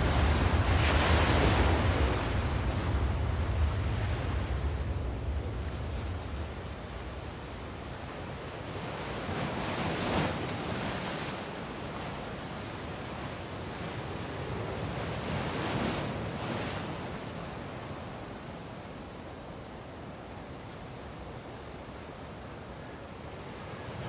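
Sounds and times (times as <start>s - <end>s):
ocean waves washing in: 0.0s - 11.8s.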